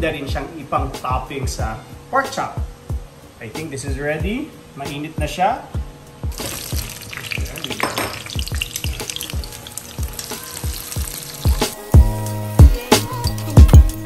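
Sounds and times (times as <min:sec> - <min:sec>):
background music with steady beat: 0:00.0 - 0:14.0
onions sizzling in hot oil: 0:06.3 - 0:12.6.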